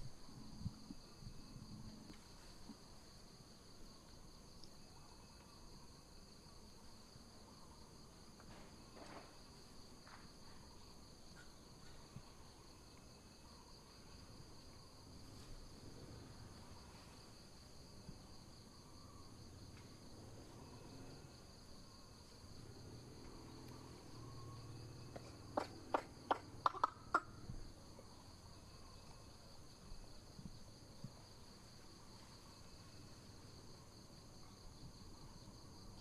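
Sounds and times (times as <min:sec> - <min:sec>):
high-pitched insect drone: 0:23.5 - 0:25.7.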